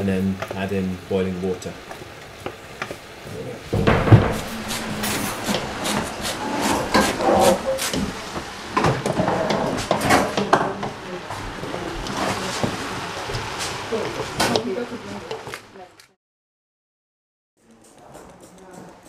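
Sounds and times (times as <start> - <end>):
wooden spoon scraping metal pot: 4.2 - 10.6.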